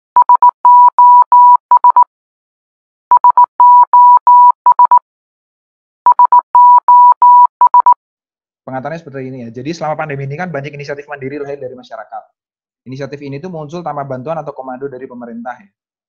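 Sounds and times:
morse code electronic beeps: 0.2s - 2.1s, 3.1s - 5.0s, 6.1s - 8.0s.

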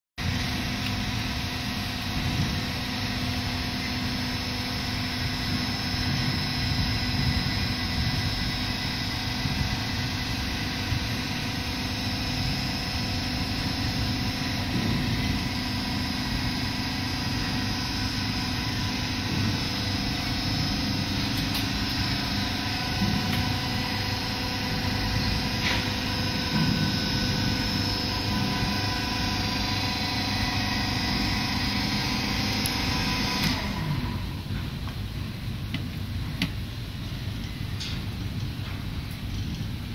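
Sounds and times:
motor and pump humming: 0.2s - 39.9s.

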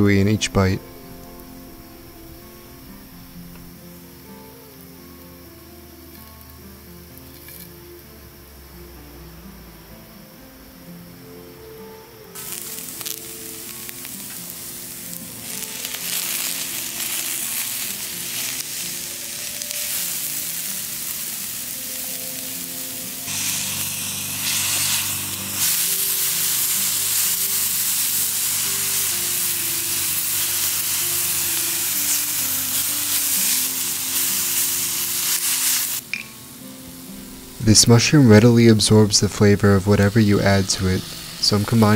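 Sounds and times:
background music: 0.0s - 41.9s
mushrooms and onions sizzling: 0.0s - 41.9s.

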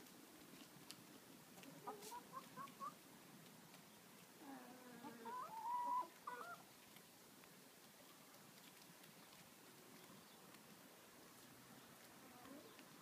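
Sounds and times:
hens clucking: 1.6s - 3.0s, 4.4s - 6.8s
hen drawn-out call: 4.4s - 6.6s.

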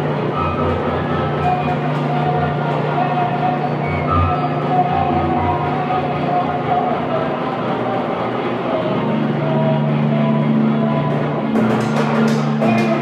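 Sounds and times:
low droning tones: 0.0s - 13.0s
quick percussive strikes: 11.5s - 13.0s.

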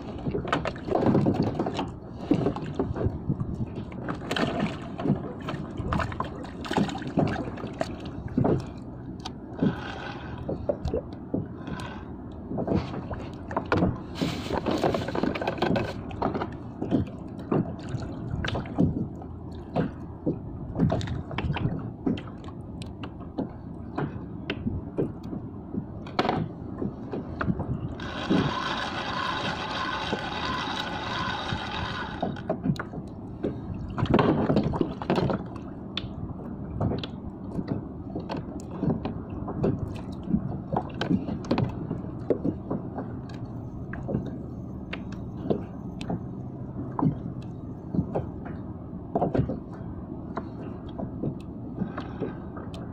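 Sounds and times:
steady multi-tone whir: 0.0s - 34.4s
water lapping against boat hull: 0.0s - 52.9s.

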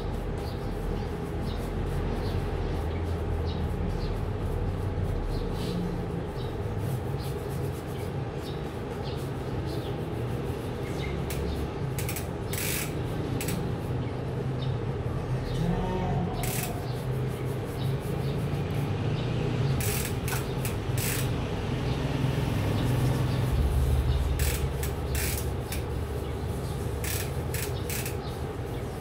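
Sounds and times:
stiff brush scrubbing bike chain: 0.0s - 14.1s, 16.3s - 29.0s.

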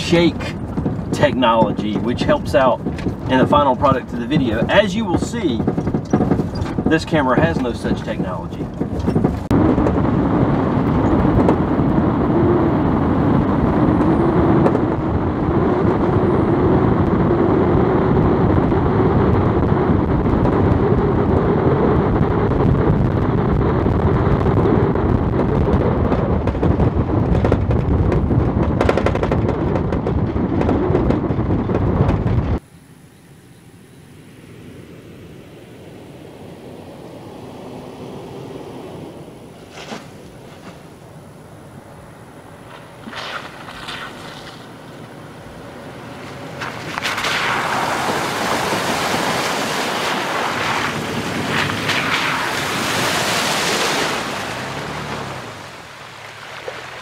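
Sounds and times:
knocks from rough road: 0.0s - 11.8s, 13.9s - 15.0s, 25.4s - 32.6s, 42.6s - 44.8s, 46.2s - 52.9s
car engine and tyre noise: 0.0s - 57.0s
distant vehicle: 0.0s - 57.0s.

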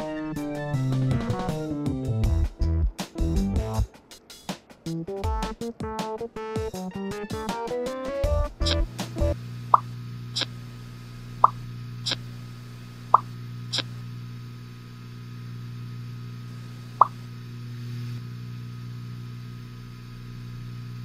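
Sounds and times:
steady low hum: 8.2s - 21.0s.

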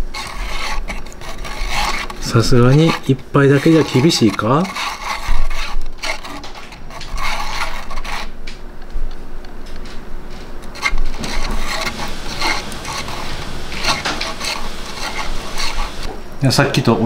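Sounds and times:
chopsticks scraping noodle cup: 0.0s - 8.4s, 10.6s - 16.1s.

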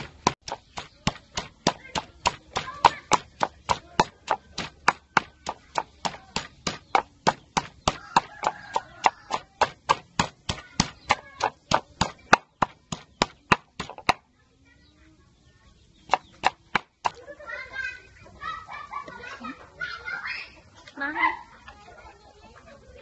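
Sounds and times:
pestle pounding in a mortar: 0.0s - 14.2s, 16.1s - 17.2s.

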